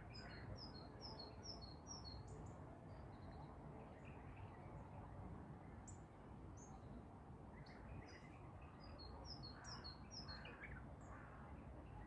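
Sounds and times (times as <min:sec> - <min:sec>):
small songbirds chirping: 0:00.0 - 0:03.4.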